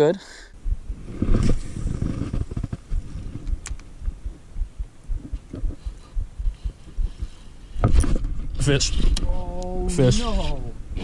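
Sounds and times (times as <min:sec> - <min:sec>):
low thumps and rumble: 0:00.6 - 0:09.2
sharp click: 0:03.5 - 0:03.9.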